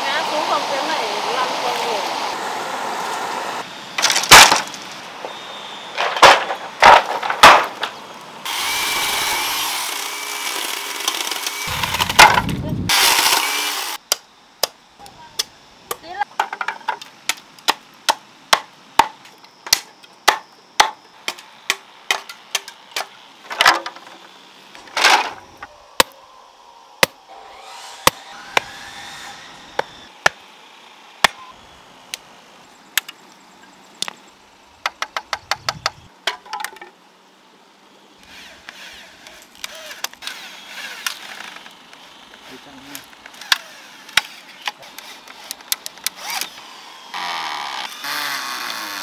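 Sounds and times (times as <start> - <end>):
machete chopping bamboo: 6.2 - 7.8, 17.2 - 23.9
bamboo cracking split: 10.5 - 13.4.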